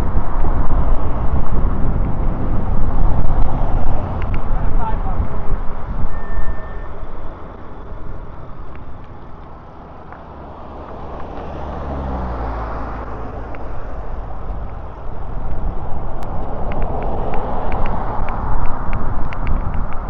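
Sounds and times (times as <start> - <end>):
car passing: 0.0 - 20.0
low traffic rumble: 0.0 - 20.0.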